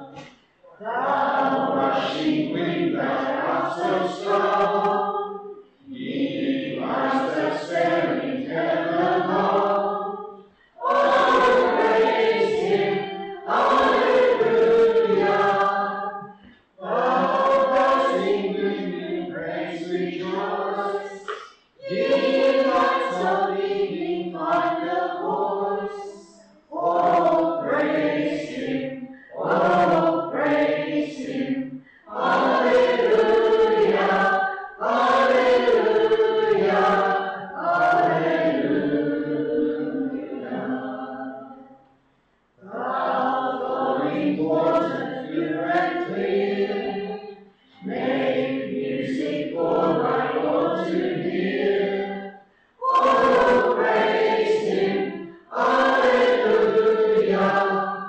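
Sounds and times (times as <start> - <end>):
choir singing: 0.0 - 41.8, 42.6 - 58.0.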